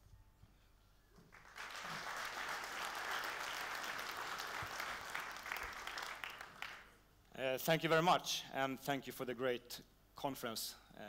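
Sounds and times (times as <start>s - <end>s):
audience applauding: 1.3s - 7.0s.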